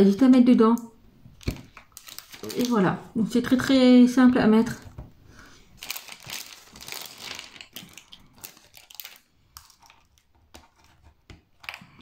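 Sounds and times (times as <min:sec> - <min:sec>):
plastic bag rustling: 0:01.4 - 0:02.9, 0:05.7 - 0:10.2.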